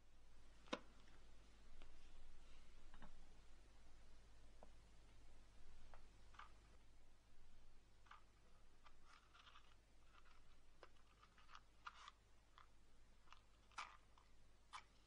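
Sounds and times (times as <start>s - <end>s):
small objects clicking: 8.0s - 15.0s.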